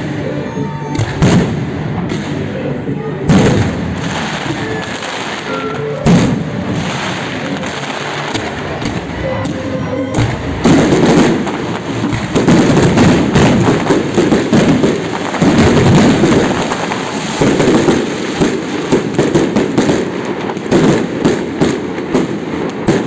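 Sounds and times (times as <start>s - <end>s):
fireworks bursting: 0.0s - 23.0s
low booms: 1.0s - 22.2s
continuous crackle: 3.9s - 23.0s.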